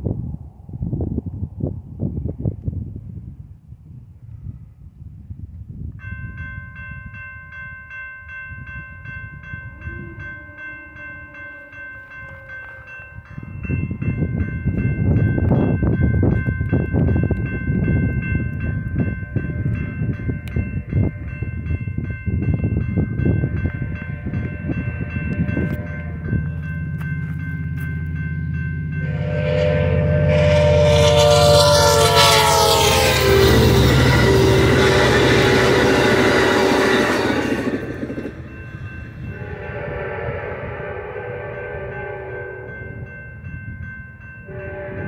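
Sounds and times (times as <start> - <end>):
crossing warning bell ringing: 6.0 - 45.0
train drone: 8.5 - 45.0
low rumble: 22.4 - 39.7.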